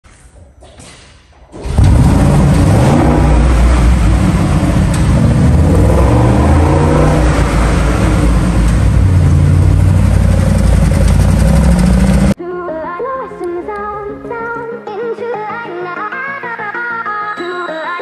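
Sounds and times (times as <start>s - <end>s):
loud engine exhaust: 1.7s - 12.4s.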